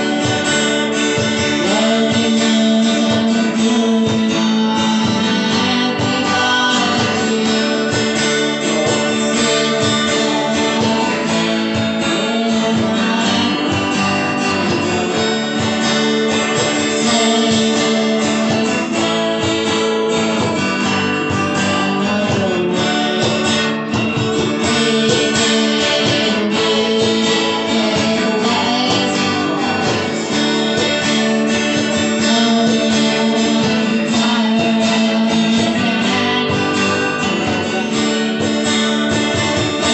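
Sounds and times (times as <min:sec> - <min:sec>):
acoustic guitars strumming: 0:00.0 - 0:39.9
hand percussion beat: 0:00.0 - 0:39.9.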